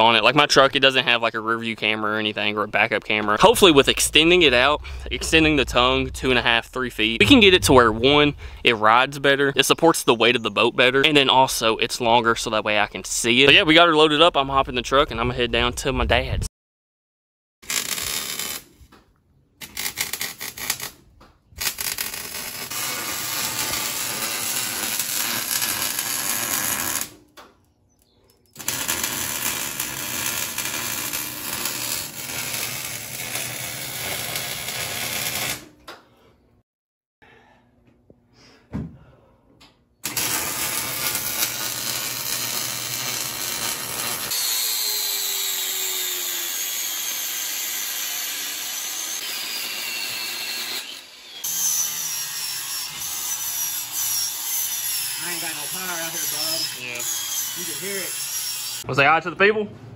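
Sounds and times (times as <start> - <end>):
angle grinder cutting steel: 21.6 - 27.1, 28.6 - 35.6, 40.0 - 58.9
metalworking power tool: 21.6 - 27.1, 28.6 - 35.6, 40.0 - 58.9.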